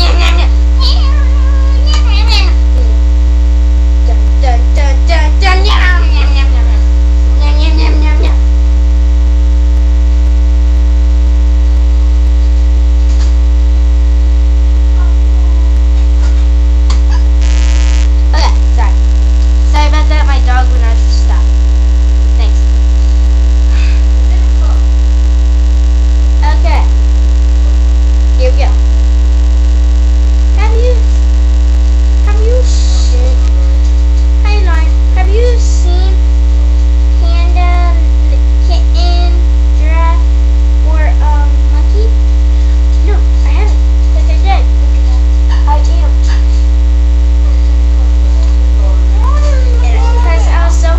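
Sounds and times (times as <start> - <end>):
electrical mains hum: 0.0 - 50.9
faint children's voices: 48.3 - 50.9.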